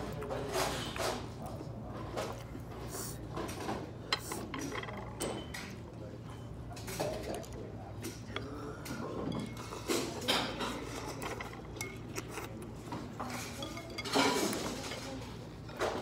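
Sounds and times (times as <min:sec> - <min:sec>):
utensils clinking on soup bowl: 0:03.4 - 0:16.0.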